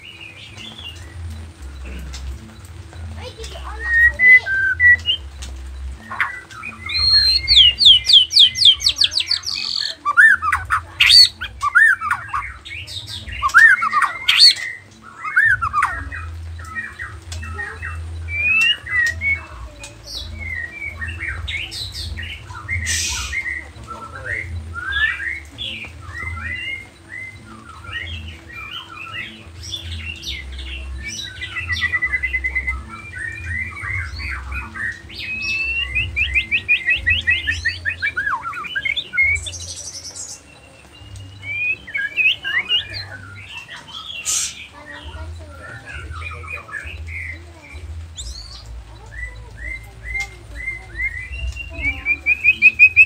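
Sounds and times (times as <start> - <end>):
bird singing whistles and trills: 0.0 - 53.0.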